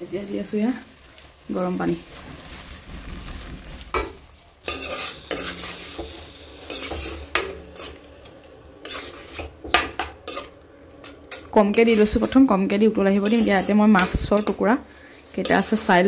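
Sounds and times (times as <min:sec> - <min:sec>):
water poured into hot wok: 0:00.7 - 0:11.4
ladle scraping and clinking on wok: 0:03.9 - 0:16.0.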